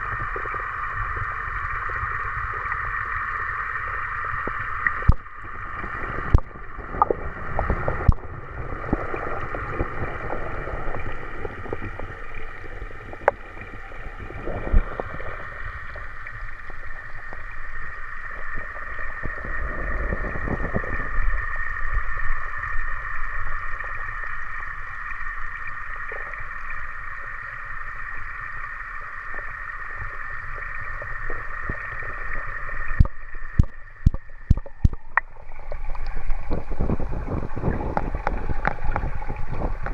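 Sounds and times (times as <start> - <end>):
underwater hum and rumbling: 0.0 - 39.9.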